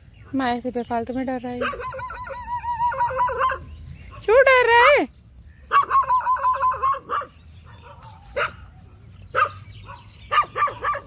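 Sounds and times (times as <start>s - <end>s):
dog yelping and barking: 1.6s - 4.3s, 5.7s - 11.0s.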